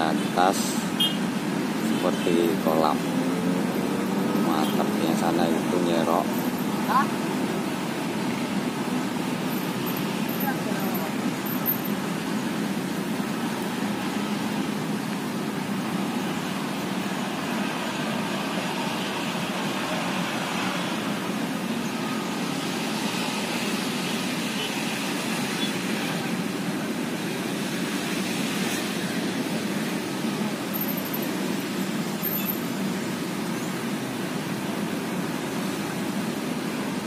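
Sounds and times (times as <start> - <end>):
city traffic hum: 0.0 - 37.0.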